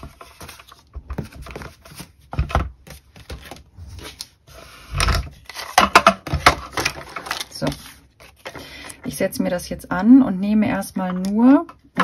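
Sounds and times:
paper rustling: 0.0s - 4.4s.

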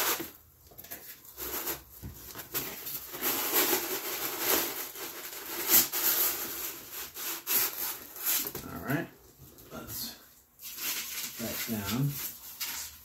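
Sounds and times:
styrofoam crackles: 1.2s - 8.6s
styrofoam scraping against cardboard: 1.3s - 8.6s, 10.6s - 13.0s.

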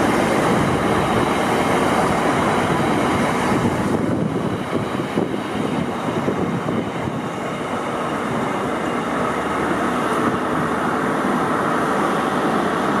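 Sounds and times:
freight train wheels on rails: 0.0s - 13.0s.

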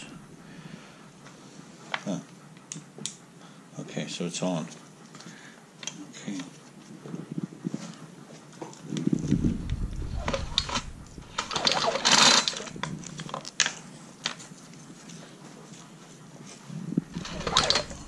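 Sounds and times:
engine cranking over: 9.2s - 13.1s, 17.0s - 18.0s
recoil starter pulled: 9.6s - 13.3s, 17.1s - 18.0s.

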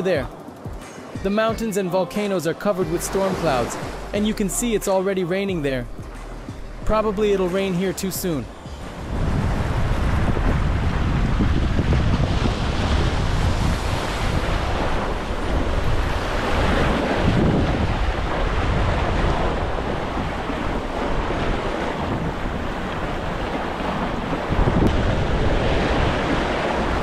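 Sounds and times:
sea surf washing in: 0.0s - 27.0s
wind buffeting microphone: 8.5s - 27.0s.

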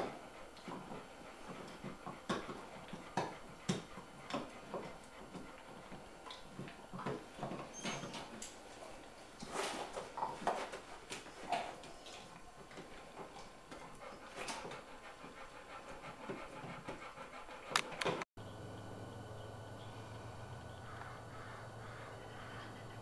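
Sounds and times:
dog panting: 0.0s - 9.1s, 10.5s - 18.2s, 20.8s - 23.0s.

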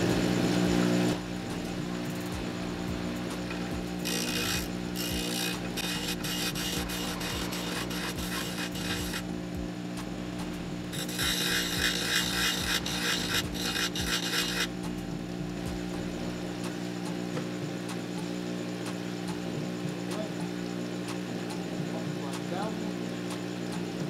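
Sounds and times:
bench grinder humming: 0.0s - 9.8s, 10.4s - 15.4s
chisel grinding on wheel: 3.4s - 9.3s, 10.9s - 14.8s.

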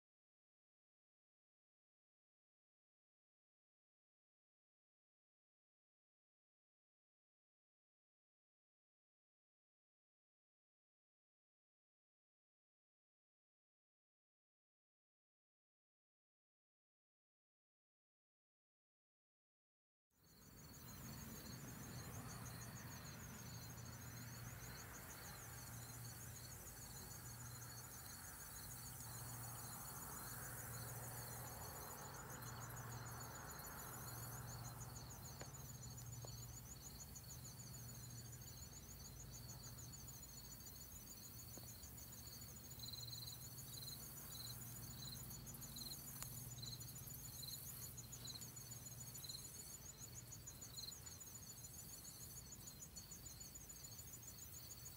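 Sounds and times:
insect chirps: 20.2s - 54.9s
insects trilling: 20.2s - 54.9s.

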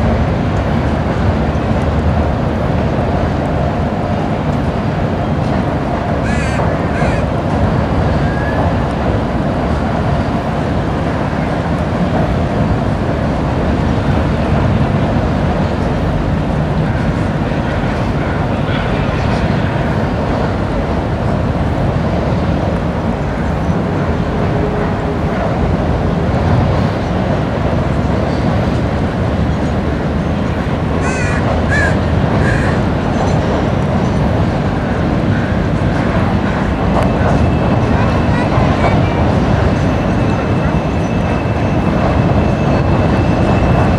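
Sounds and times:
freight train rumbling over bridge: 0.0s - 43.9s
crow cawing: 6.2s - 7.3s, 31.0s - 32.8s.

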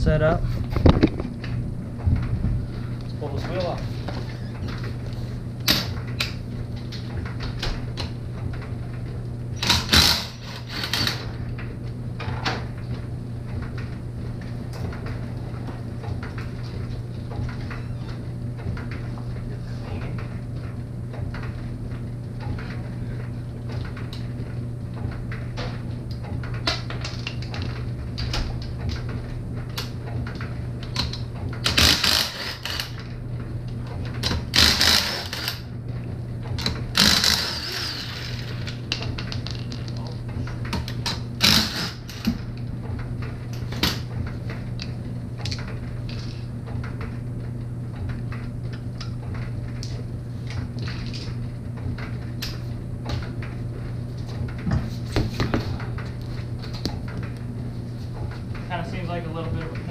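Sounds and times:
low hum: 0.0s - 59.9s
impact wrench hammering: 31.6s - 32.9s
small clicks and clatter: 36.4s - 53.6s.

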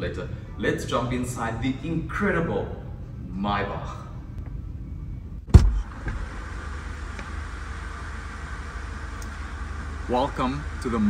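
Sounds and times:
steady low hum: 0.0s - 11.0s
loud thump: 5.5s - 6.3s.

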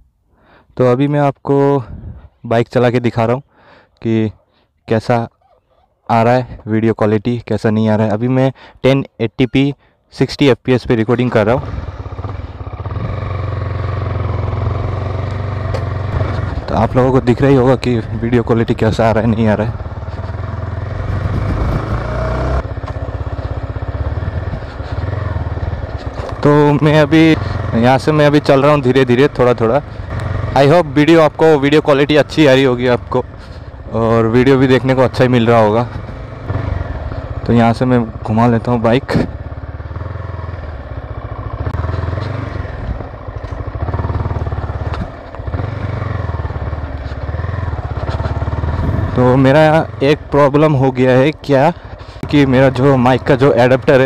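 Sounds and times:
motorcycle engine running: 11.4s - 54.0s.

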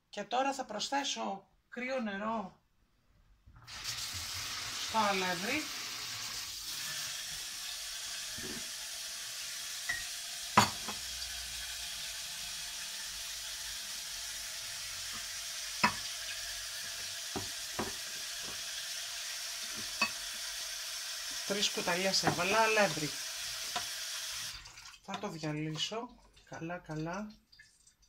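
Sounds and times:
meat sizzling in broth: 3.6s - 25.0s.

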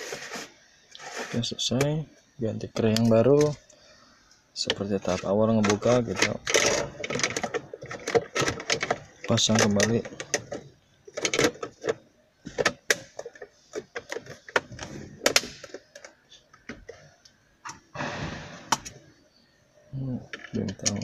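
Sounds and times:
scraping rustle: 0.0s - 1.6s.

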